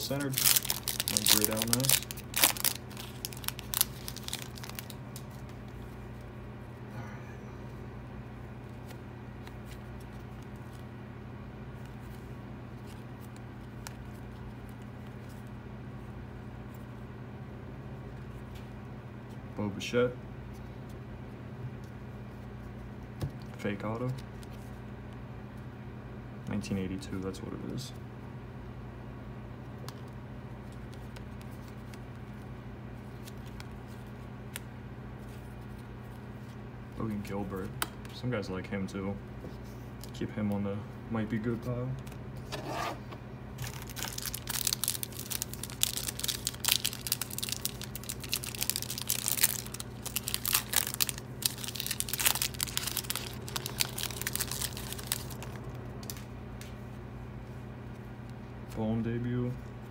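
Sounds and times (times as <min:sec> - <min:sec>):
cards flipping and rustling: 0:00.0 - 0:06.0, 0:08.6 - 0:10.9, 0:29.8 - 0:36.6, 0:43.6 - 0:56.8
steady low hum: 0:00.0 - 0:59.9.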